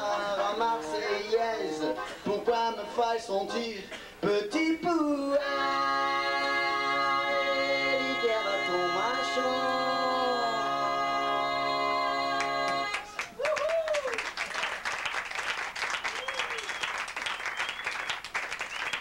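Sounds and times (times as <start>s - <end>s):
person singing: 0.0s - 13.2s
audience applauding: 12.7s - 19.0s.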